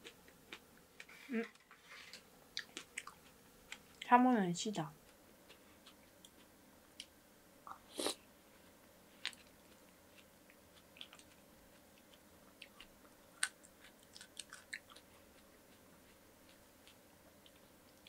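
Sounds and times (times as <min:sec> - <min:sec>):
wet chewing clicks and smacks: 0:02.5 - 0:04.1, 0:05.0 - 0:07.9, 0:09.2 - 0:18.0.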